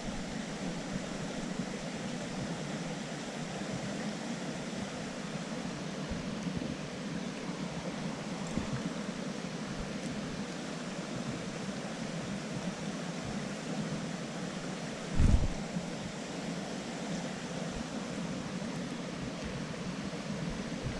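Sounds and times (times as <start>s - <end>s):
creek water running: 0.0s - 20.9s
low thump: 15.2s - 15.6s.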